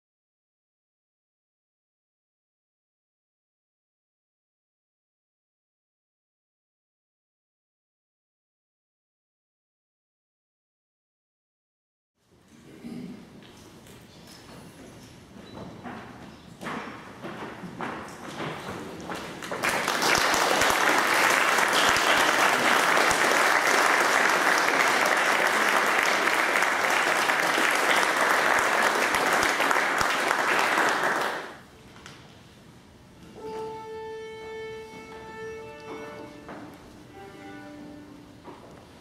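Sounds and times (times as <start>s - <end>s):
audience applauding: 19.2s - 31.6s
flute viola and piano note: 33.4s - 38.4s.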